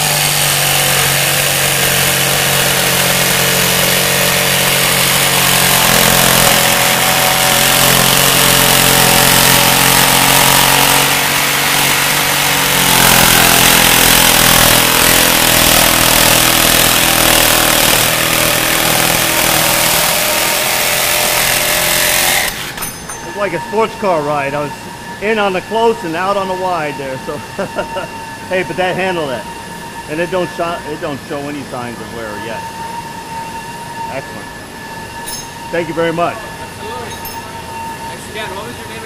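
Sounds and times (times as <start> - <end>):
jigsaw cutting metal: 0.0 - 23.2.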